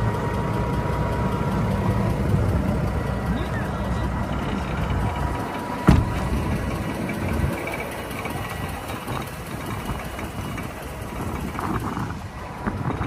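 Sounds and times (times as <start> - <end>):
low engine rumble: 0.0 - 13.0
truck door slamming: 5.8 - 6.7.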